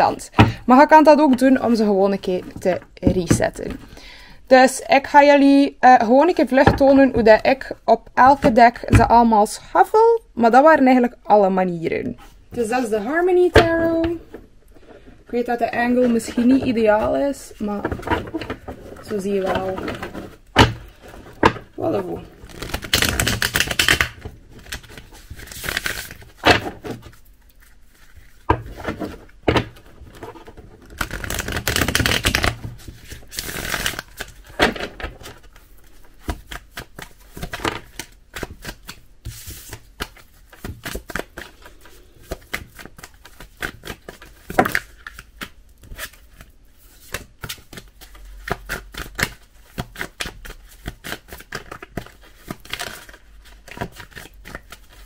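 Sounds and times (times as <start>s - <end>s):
cards being shuffled: 17.9s - 55.0s.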